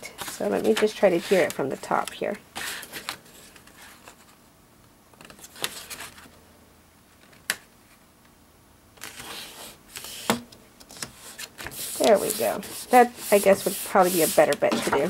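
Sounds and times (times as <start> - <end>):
card rustling and brushing: 0.1 - 4.4, 5.2 - 6.3, 9.0 - 15.0.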